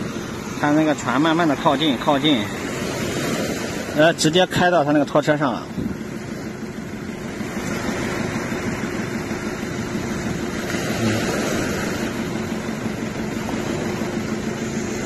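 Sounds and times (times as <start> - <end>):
waves breaking on pebble shore: 0.0 - 4.5, 6.8 - 15.0
low engine hum: 0.0 - 15.0.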